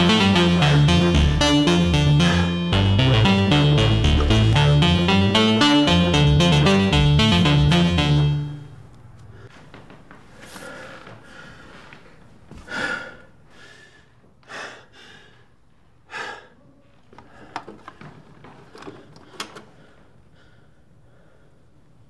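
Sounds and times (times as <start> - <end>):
man breathing heavily: 0.0 - 5.2, 10.3 - 12.0, 12.6 - 16.6.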